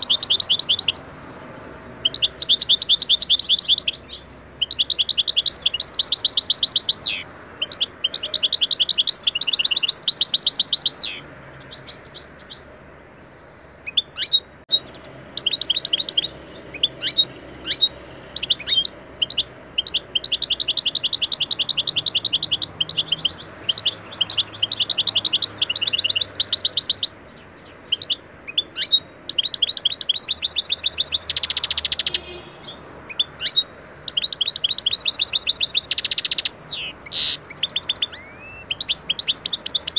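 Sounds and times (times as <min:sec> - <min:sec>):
buzzy bird trill: 0:00.0 - 0:12.7, 0:13.7 - 0:39.9
goldfinch singing: 0:00.0 - 0:12.7, 0:13.5 - 0:39.9.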